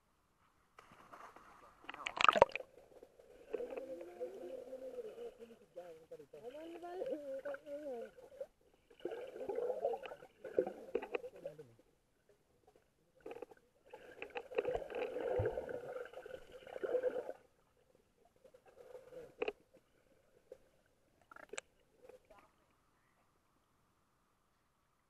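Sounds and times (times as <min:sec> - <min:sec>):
underwater river rushing: 0:07.0 - 0:11.4, 0:13.3 - 0:17.4.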